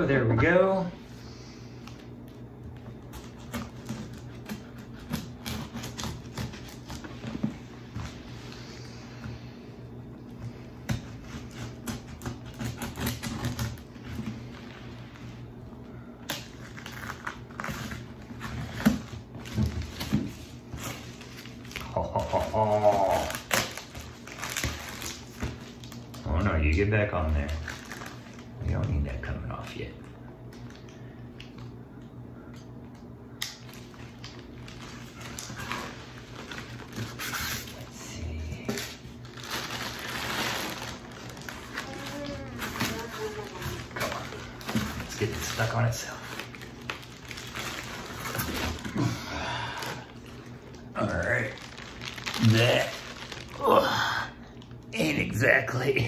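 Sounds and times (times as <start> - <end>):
plastic wrapping rustling: 1.8 - 9.5, 10.2 - 31.7, 33.4 - 55.8
packing tape ripping: 3.0 - 7.4, 10.8 - 14.5, 16.2 - 26.4, 38.6 - 49.1, 49.8 - 53.9.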